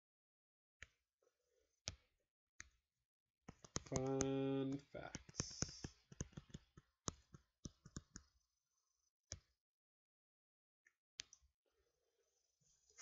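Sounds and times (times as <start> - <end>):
stylus tapping on tablet screen: 3.5 - 8.4.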